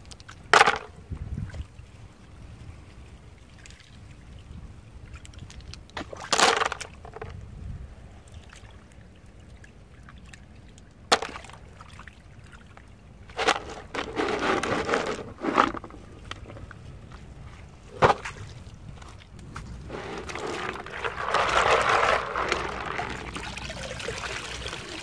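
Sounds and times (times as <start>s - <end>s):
clams clattering into plastic basin: 0.4s - 1.0s, 6.0s - 7.4s, 11.1s - 11.6s, 13.3s - 16.7s, 17.9s - 18.4s, 19.9s - 23.5s
water splashing: 19.8s - 25.0s.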